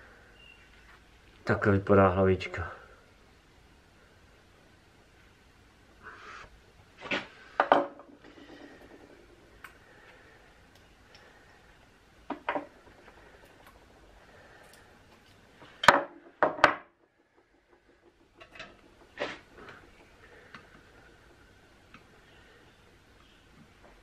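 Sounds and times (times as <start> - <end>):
metal clinks and knocks: 11.7 - 22.2.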